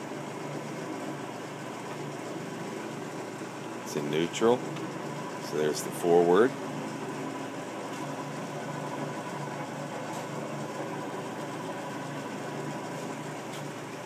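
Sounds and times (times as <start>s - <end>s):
lathe motor humming: 0.0s - 14.0s.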